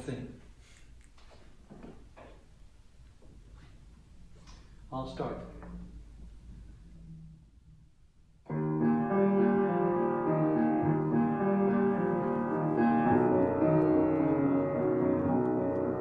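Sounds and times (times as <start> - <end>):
slow grand piano piece: 8.4 - 16.0.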